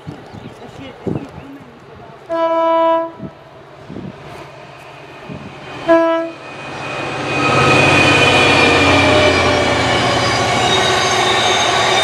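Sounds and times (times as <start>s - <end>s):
diesel train running noise: 0.7s - 12.0s
diesel locomotive horn blasts: 2.3s - 3.4s, 5.8s - 6.6s.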